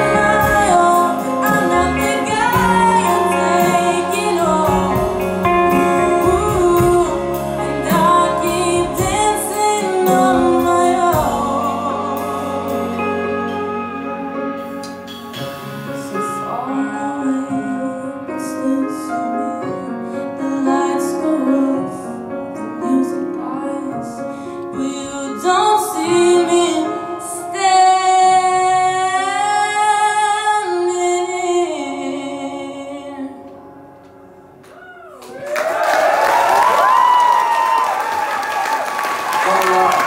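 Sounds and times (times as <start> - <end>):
woman singing: 0.0 - 14.6, 16.1 - 33.8
band playing: 0.0 - 18.0, 36.2 - 40.0.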